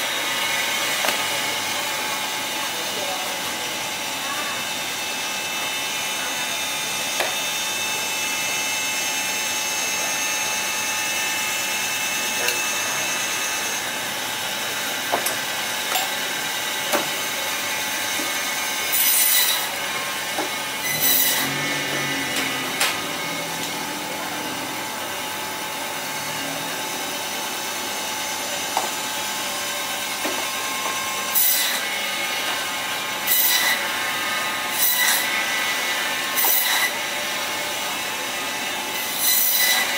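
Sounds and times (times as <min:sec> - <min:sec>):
band saw whining: 0:00.0 - 0:39.9
saw blade cutting bone: 0:07.2 - 0:07.5, 0:14.8 - 0:24.8, 0:30.2 - 0:37.2, 0:38.9 - 0:39.9.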